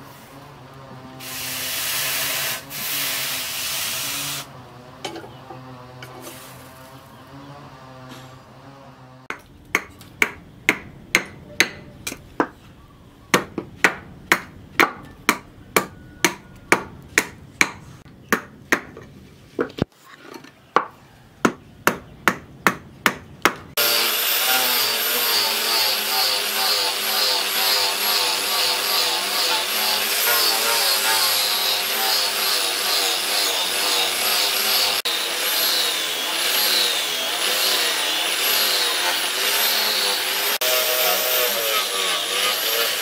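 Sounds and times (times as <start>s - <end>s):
angle grinder sanding wood: 0.0s - 9.3s, 23.8s - 43.0s
hammer on metal: 9.3s - 12.6s.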